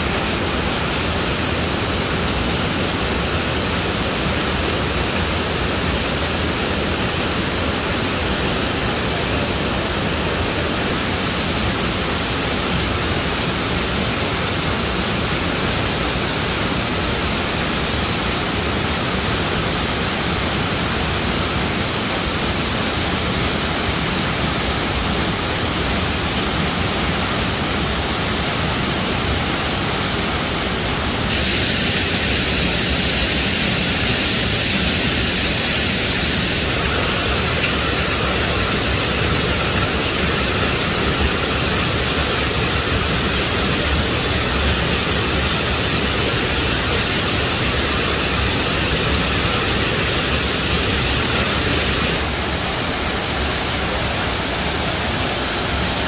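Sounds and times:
water pouring over rocks: 0:31.3 - 0:52.2.

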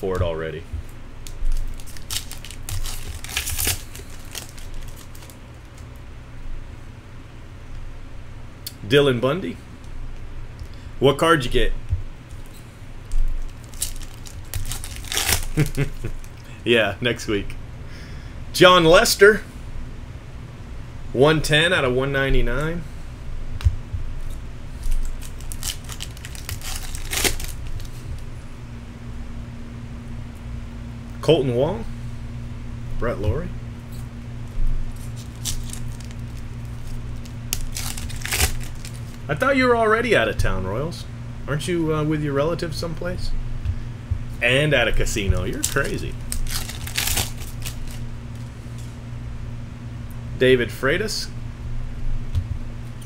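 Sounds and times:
foil wrapper crinkling: 0:01.2 - 0:05.8, 0:12.4 - 0:16.5, 0:24.8 - 0:28.2, 0:34.9 - 0:39.3, 0:45.0 - 0:48.5
cards rustling: 0:01.3 - 0:05.8, 0:13.2 - 0:16.4, 0:24.8 - 0:28.2, 0:35.0 - 0:39.3, 0:44.9 - 0:48.5.

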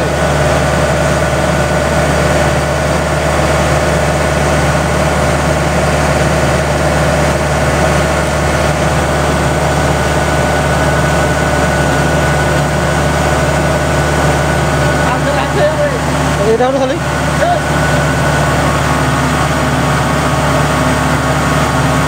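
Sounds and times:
combine harvester droning: 0:00.0 - 0:22.0
steady machine whine: 0:00.0 - 0:22.0.

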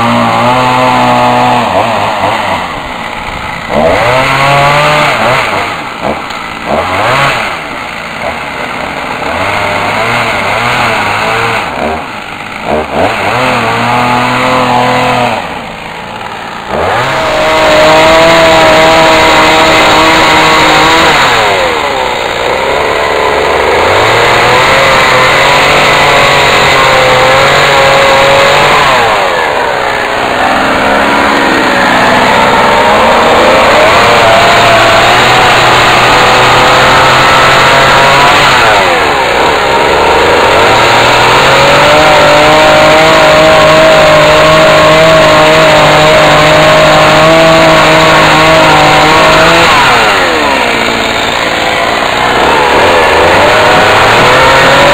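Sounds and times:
chainsaw cutting log: 0:00.0 - 0:54.9.

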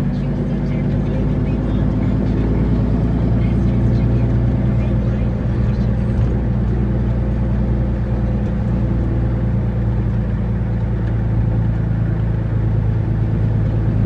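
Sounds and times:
diesel truck engine running: 0:00.0 - 0:14.0.

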